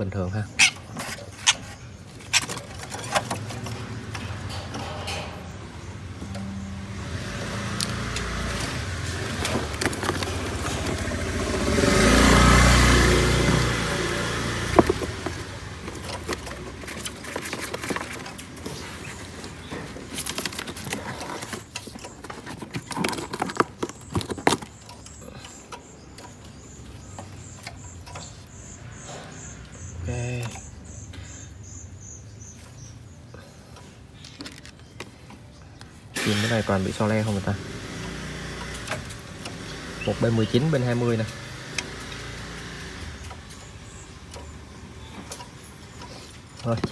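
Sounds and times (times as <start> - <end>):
motor vehicle passing: 2.9 - 22.1, 36.2 - 46.6
scattered clicks and knocks: 13.4 - 30.7.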